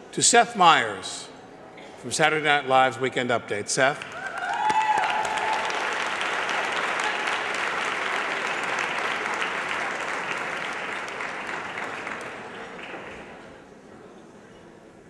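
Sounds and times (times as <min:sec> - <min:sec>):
audience applauding: 0:04.0 - 0:13.6.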